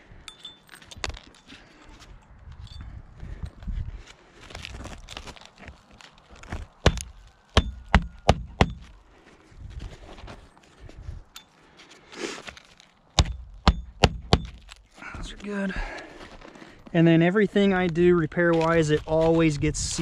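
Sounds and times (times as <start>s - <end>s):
scuffing on shingles: 3.3s - 11.0s, 11.6s - 15.0s
hatchet striking roofing nails: 6.8s - 8.9s, 13.2s - 14.8s.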